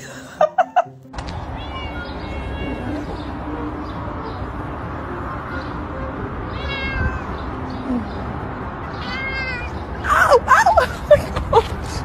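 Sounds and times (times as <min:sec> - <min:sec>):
cat meowing: 0:01.6 - 0:03.2, 0:06.5 - 0:07.5, 0:08.9 - 0:09.9.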